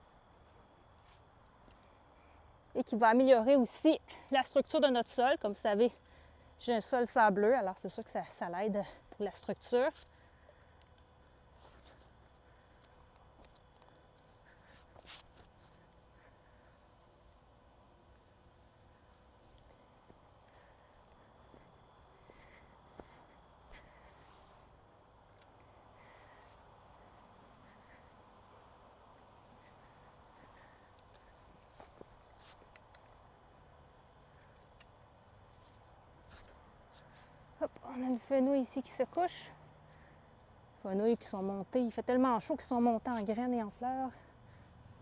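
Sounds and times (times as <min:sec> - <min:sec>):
crickets chirping: 0:00.0 - 0:45.0
hands rustling in garden soil: 0:11.4 - 0:16.1, 0:30.6 - 0:33.5.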